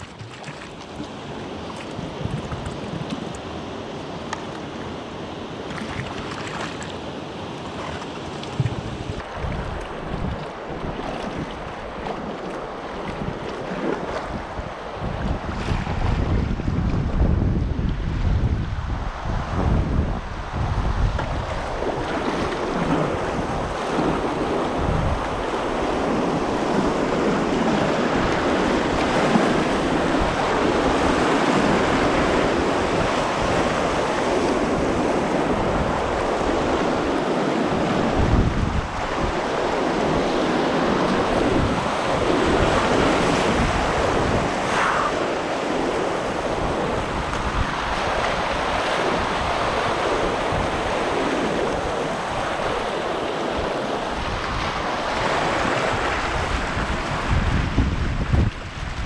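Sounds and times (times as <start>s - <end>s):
wind buffeting microphone: 0.0s - 4.7s, 7.7s - 59.0s.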